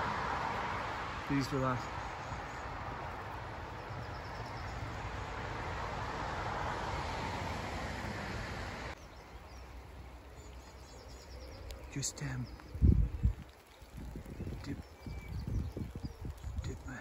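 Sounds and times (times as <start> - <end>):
songbirds twittering: 0.8 - 6.1, 8.9 - 17.0.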